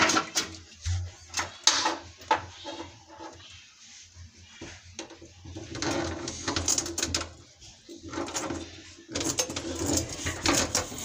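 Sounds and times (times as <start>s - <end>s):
drain tool scraping in pipe: 0.1s - 3.7s, 4.6s - 11.0s.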